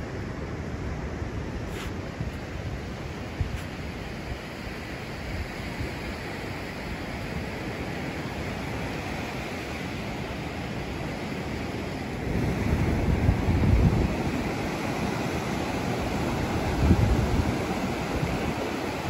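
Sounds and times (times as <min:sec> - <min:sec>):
wind buffeting microphone: 0:00.0 - 0:09.1, 0:09.8 - 0:19.0
sea surf breaking on beach: 0:00.0 - 0:19.0.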